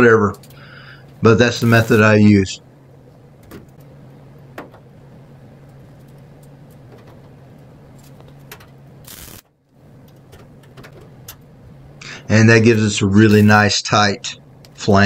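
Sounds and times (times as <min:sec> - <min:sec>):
low hum: 0:00.0 - 0:13.6
short burst of noise: 0:09.1 - 0:09.5.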